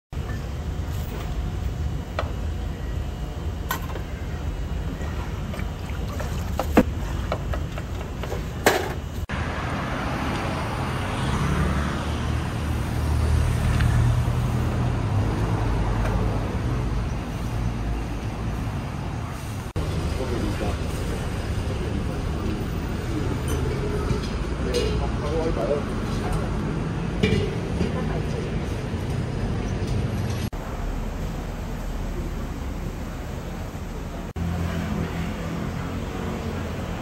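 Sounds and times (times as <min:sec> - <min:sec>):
cars and scooters passing: 0:09.3 - 0:33.2, 0:33.8 - 0:37.0.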